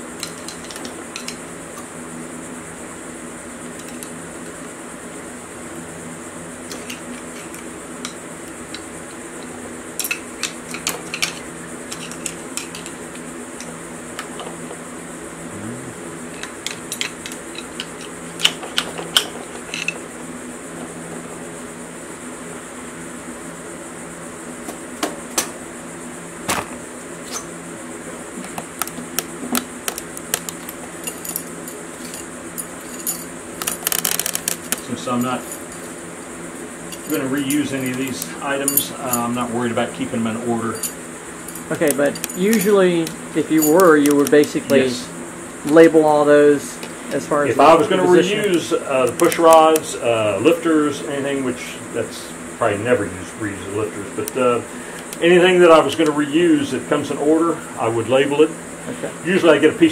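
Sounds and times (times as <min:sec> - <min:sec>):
metal parts clinking: 0:00.2 - 0:01.4, 0:06.7 - 0:14.5, 0:16.3 - 0:20.0, 0:29.9 - 0:36.0, 0:36.9 - 0:39.4, 0:40.6 - 0:44.9, 0:48.3 - 0:49.8.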